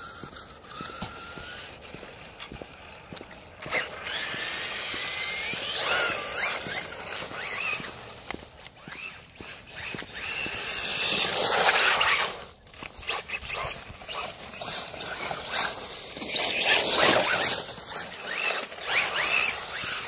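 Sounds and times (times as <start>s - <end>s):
electric motor whine: 0.0s - 20.0s
tyres scrabbling over dirt: 0.0s - 20.0s.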